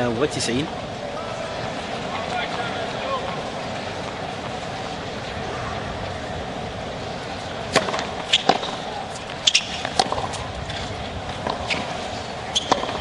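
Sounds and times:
stadium crowd murmur: 0.0s - 13.0s
tennis ball bounces: 7.7s - 13.0s
tennis racquet strikes: 7.7s - 13.0s.

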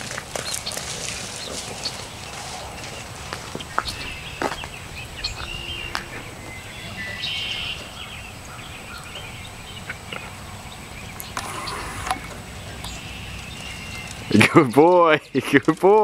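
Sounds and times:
low wind rumble: 0.0s - 15.0s
sharp clicks: 11.1s - 14.3s.

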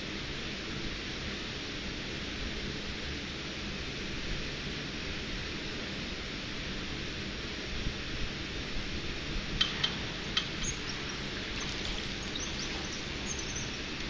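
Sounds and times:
bird chirps: 9.6s - 14.0s
faint high chirps: 9.6s - 14.0s
rushing water: 9.6s - 14.0s.

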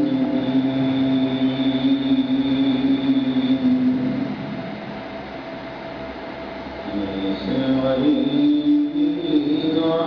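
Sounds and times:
man chanting a long note: 0.0s - 4.6s, 6.8s - 10.0s
faint high-pitched whine: 0.0s - 10.0s.

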